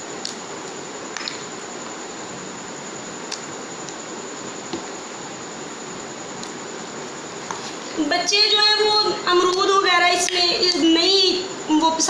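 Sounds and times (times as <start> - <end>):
steady hiss with high whine: 0.0 - 12.0.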